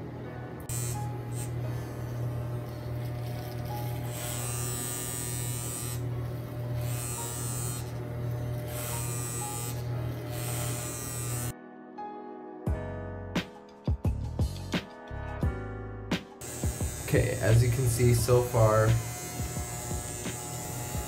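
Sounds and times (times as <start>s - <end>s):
electric hair clippers buzzing: 0.6s - 11.6s, 16.4s - 21.0s
clipper blades rasping through hair: 0.7s - 11.5s, 16.4s - 21.0s.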